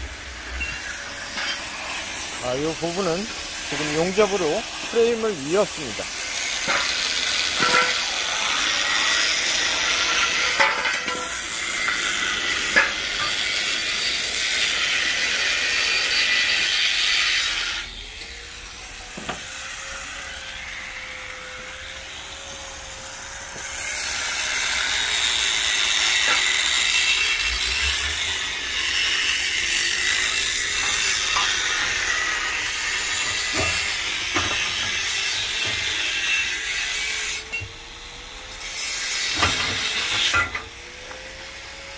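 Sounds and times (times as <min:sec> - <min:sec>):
loud harsh hiss: 0:00.0 - 0:17.0.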